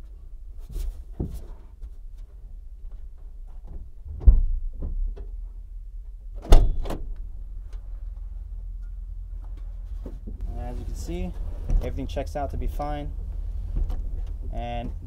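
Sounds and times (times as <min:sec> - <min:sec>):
car trunk lid thumping shut: 0:06.4 - 0:07.1.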